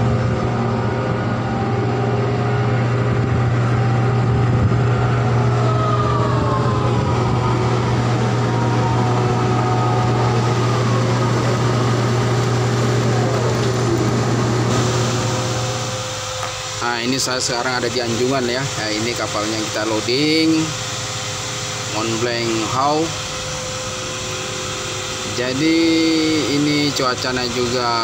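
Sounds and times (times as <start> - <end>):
whining tones sliding down: 0.0 - 19.4
heavy diesel machinery drone: 0.0 - 28.0.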